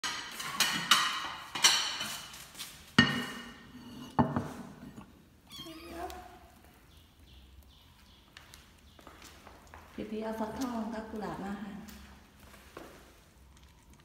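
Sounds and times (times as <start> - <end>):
ceramic plates clinking: 3.0 - 5.1.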